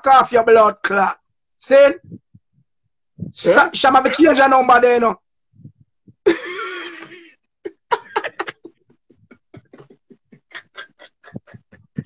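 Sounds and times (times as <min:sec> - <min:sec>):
men laughing: 0:06.2 - 0:12.0.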